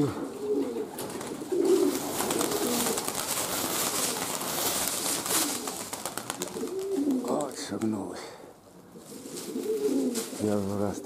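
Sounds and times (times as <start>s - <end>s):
pigeons cooing: 0.0s - 11.0s
pigeon wings clattering: 0.7s - 8.0s.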